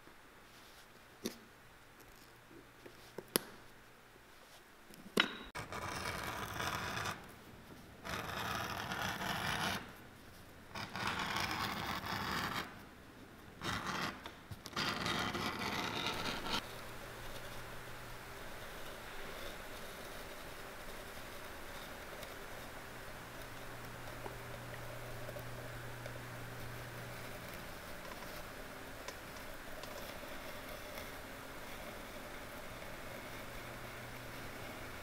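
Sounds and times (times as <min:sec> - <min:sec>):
knife scraping along leather: 0:05.6 - 0:07.3, 0:08.0 - 0:10.0, 0:10.7 - 0:12.8, 0:13.6 - 0:17.6.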